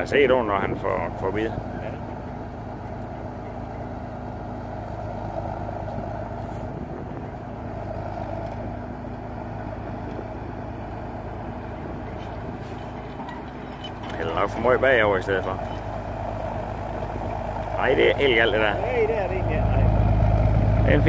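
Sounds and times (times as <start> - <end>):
dragline engine droning: 0.0 - 21.0.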